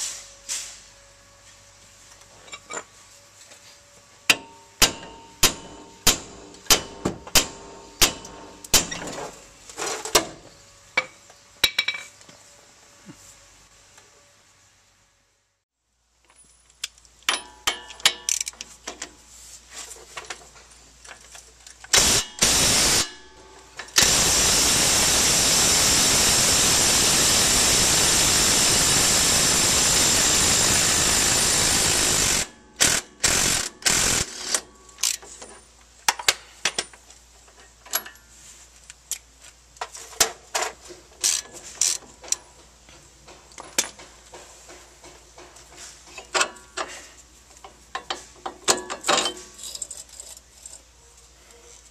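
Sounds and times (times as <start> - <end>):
impact wrench bursts: 21.9 - 34.7.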